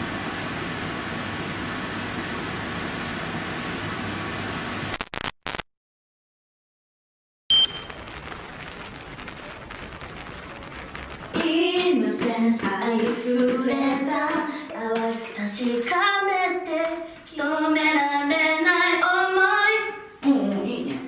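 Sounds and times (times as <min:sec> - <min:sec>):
young women singing together: 0:11.4 - 0:21.0.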